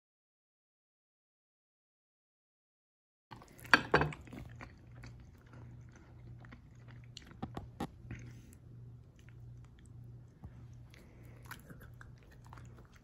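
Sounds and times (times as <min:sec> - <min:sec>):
low steady hum: 0:03.3 - 0:13.0.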